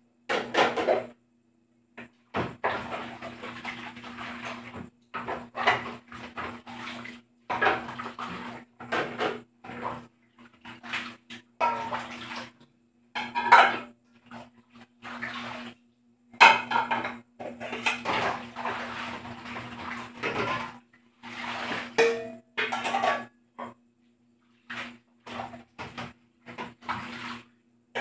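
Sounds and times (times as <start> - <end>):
dishes clinking and clattering: 0.3 - 1.1, 7.5 - 8.1, 8.8 - 9.9, 11.6 - 12.2, 13.2 - 13.9, 16.4 - 19.1, 21.6 - 23.8
water sloshing: 2.6 - 12.6, 14.2 - 15.8, 17.7 - 22.0, 24.5 - 27.6.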